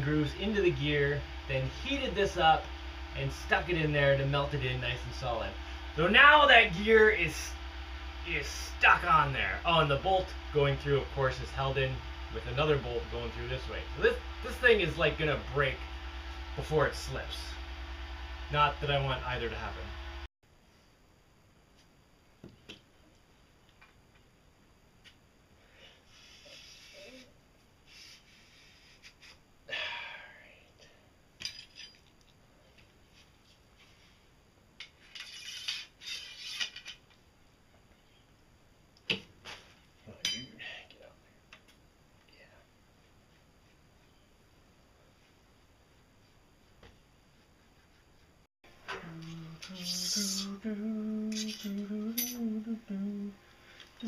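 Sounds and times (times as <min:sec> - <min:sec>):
metallic clinks and rattles: 0:31.4 - 0:32.2
metallic clinks and scrapes: 0:31.4 - 0:32.2, 0:51.3 - 0:52.4
man humming: 0:48.9 - 0:53.4.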